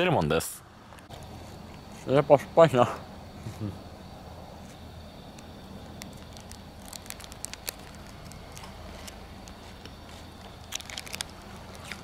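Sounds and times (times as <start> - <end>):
plastic wrapper crackling: 5.9 - 9.7, 10.4 - 12.0.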